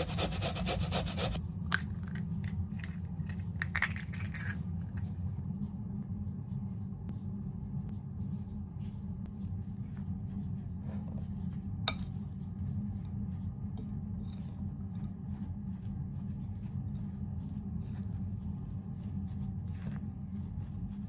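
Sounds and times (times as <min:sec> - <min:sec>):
low hum: 0:00.0 - 0:21.0
spoon scraping bowl: 0:13.8 - 0:21.0.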